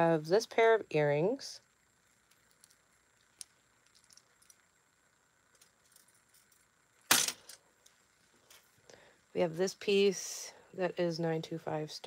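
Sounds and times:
metal jewelry clicking: 2.3 - 4.7.

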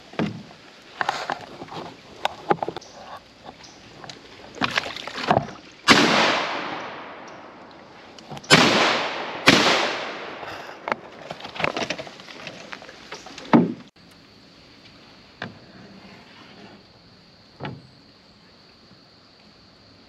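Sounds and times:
shotgun shots echoing: 5.9 - 7.4, 8.5 - 10.4.

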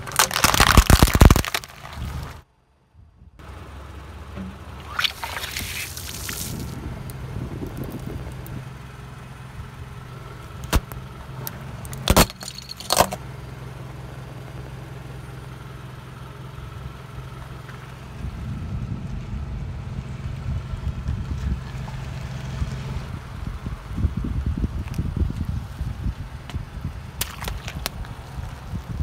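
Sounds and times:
drink carton bursting: 0.0 - 2.2
sharp cracks: 0.0 - 2.4, 4.7 - 6.8, 10.6 - 11.0, 11.8 - 13.2, 27.2 - 28.2
tyre crunching biscuits: 0.0 - 2.4, 11.9 - 13.2, 27.2 - 28.7
car engine idling: 0.0 - 22.0.

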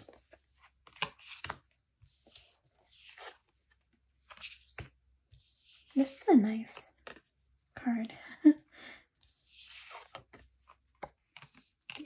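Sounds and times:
cards sliding against each other: 0.9 - 3.5.

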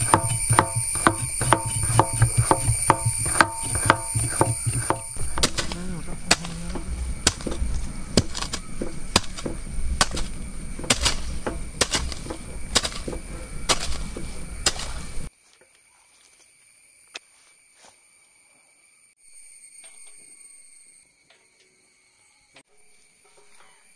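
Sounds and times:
digging tool chopping soil: 0.0 - 15.3
insects droning: 0.0 - 23.9.

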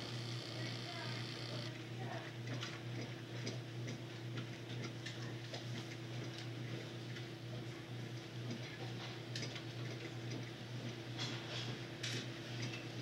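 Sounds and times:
low electrical hum: 0.0 - 3.6.

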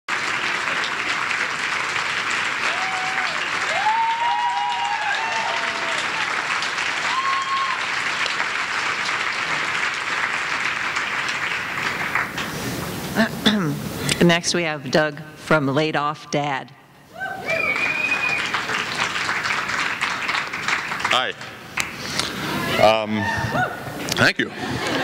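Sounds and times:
audience applauding: 0.1 - 13.0, 17.4 - 25.0
people whooping: 2.6 - 8.0, 17.1 - 18.9, 22.4 - 24.0.

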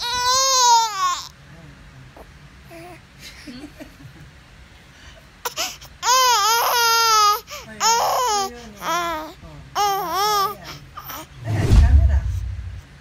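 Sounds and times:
baby crying: 0.0 - 1.3, 5.4 - 11.3.

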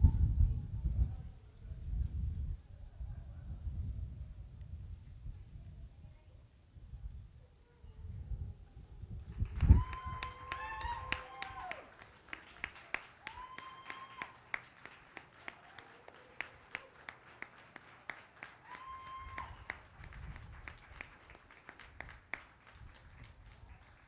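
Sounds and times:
faint clapping: 9.3 - 24.0.

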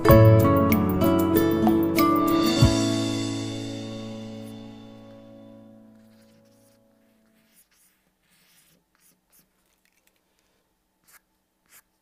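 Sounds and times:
pencil strokes on paper: 4.3 - 12.0.

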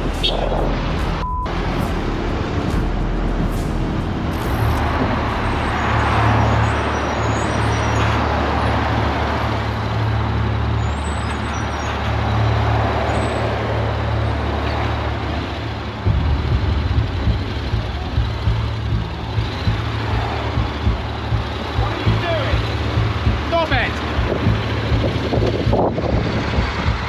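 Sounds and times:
road and wind noise: 0.0 - 27.0
motorcycle engine running: 16.1 - 27.0.

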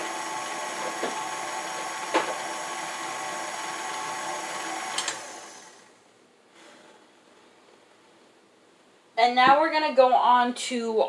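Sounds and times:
stand mixer running: 0.0 - 6.0.

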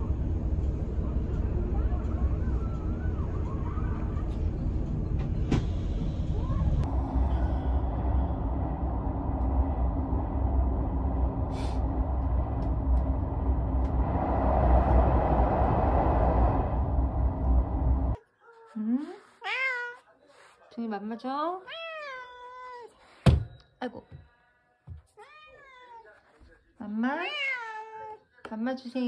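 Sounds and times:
vehicle rumble from inside cabin: 0.0 - 18.2.

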